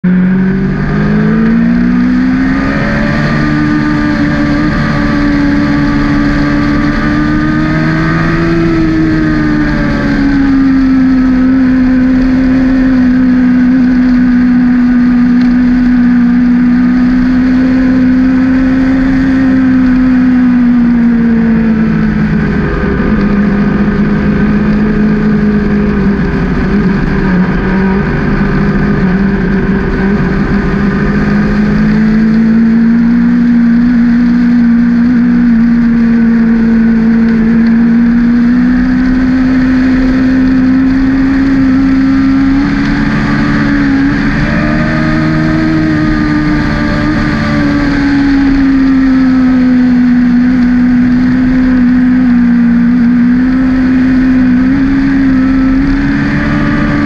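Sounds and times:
motorcycle engine at speed: 0.0s - 57.0s
wind rushing over microphone: 0.0s - 57.0s.

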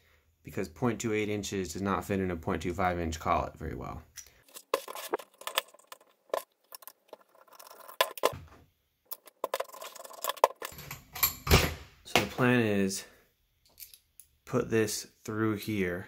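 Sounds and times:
metal parts clinking: 4.2s - 8.4s, 9.1s - 11.7s, 13.7s - 14.0s.

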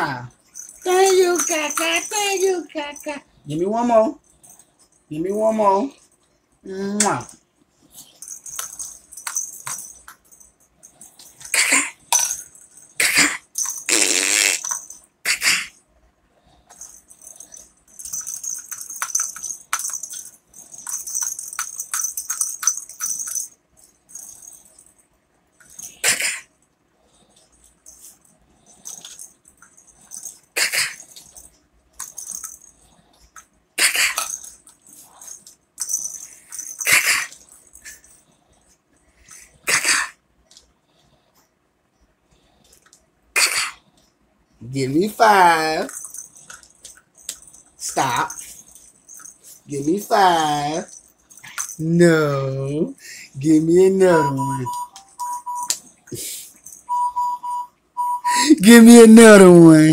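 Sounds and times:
ball rattle toy rattling: 0.2s - 3.3s, 8.0s - 15.2s, 16.6s - 26.3s, 27.2s - 38.7s, 45.2s - 52.2s.

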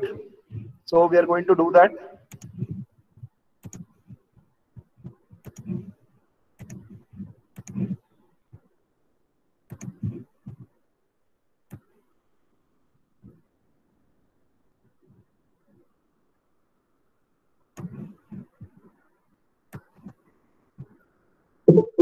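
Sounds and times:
computer mouse clicking: 2.3s - 4.2s, 5.0s - 6.0s, 6.6s - 8.0s, 9.7s - 10.7s, 17.8s - 18.9s.

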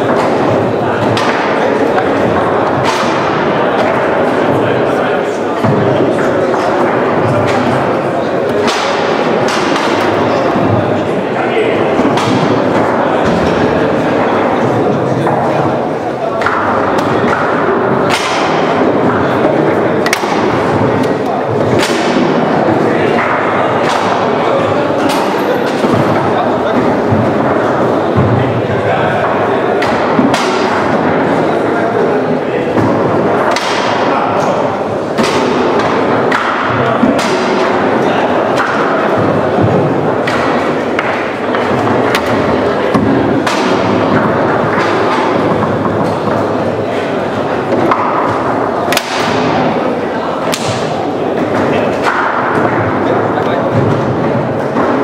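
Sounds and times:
chatter of a busy hall: 0.0s - 55.0s
foosball rods clattering: 11.7s - 28.4s, 32.7s - 55.0s.

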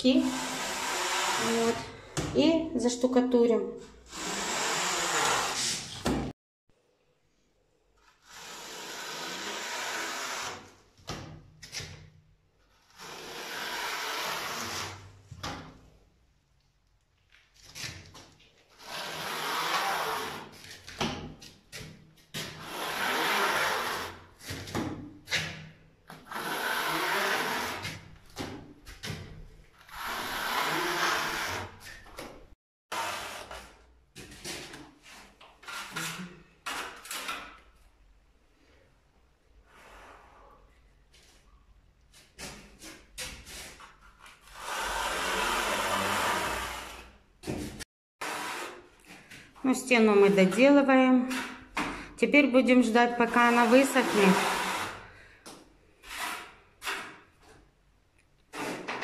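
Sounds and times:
trowel scraping wet adhesive: 53.2s - 55.1s, 55.9s - 57.5s, 58.4s - 59.0s.

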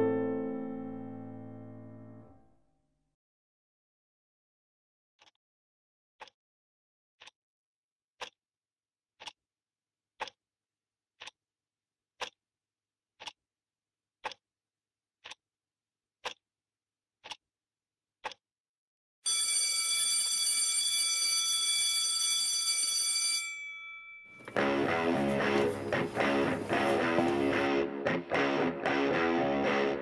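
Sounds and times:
clock ticking: 10.2s - 10.4s, 12.2s - 12.4s, 13.2s - 13.4s, 14.2s - 14.4s, 16.2s - 16.4s, 17.2s - 17.4s
school bell ringing: 19.3s - 25.7s.

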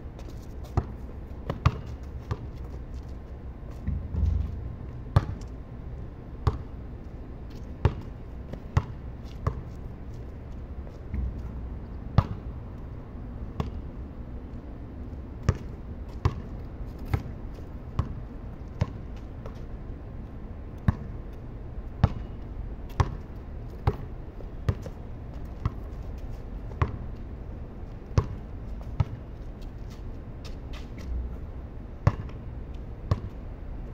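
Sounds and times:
low outdoor hum: 0.0s - 33.9s
basketball bouncing on concrete: 0.6s - 2.6s, 3.8s - 5.5s, 6.4s - 6.8s, 7.8s - 9.6s, 12.2s - 12.5s, 13.6s - 13.8s, 15.4s - 17.3s, 18.0s - 18.2s, 20.8s - 21.1s, 22.0s - 22.3s, 22.9s - 23.2s, 23.8s - 24.1s, 24.7s - 25.8s, 26.7s - 27.0s, 28.2s - 29.2s, 32.0s - 32.4s, 33.1s - 33.4s.

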